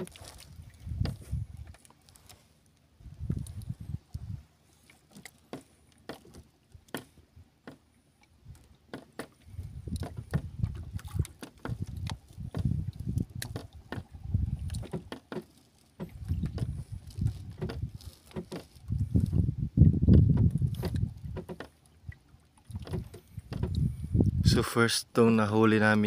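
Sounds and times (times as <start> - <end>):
low rumble in gusts: 0.0 - 1.7, 3.0 - 4.5, 9.4 - 14.9, 16.1 - 21.4, 22.7 - 24.7
water lapping against boat hull: 0.0 - 24.8.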